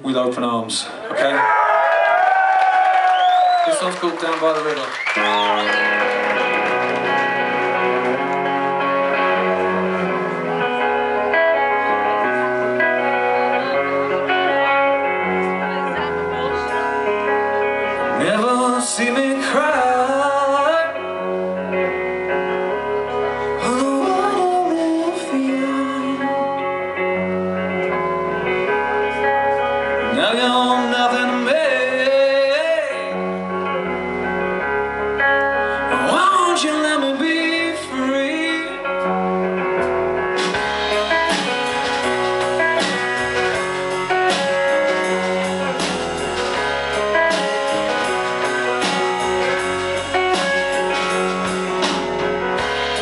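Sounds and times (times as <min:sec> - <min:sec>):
electric guitars and bass: 0:00.0 - 0:53.0
man singing: 0:18.0 - 0:22.0, 0:23.2 - 0:26.9, 0:30.0 - 0:33.4, 0:35.8 - 0:39.2
drums and cymbals: 0:40.4 - 0:53.0.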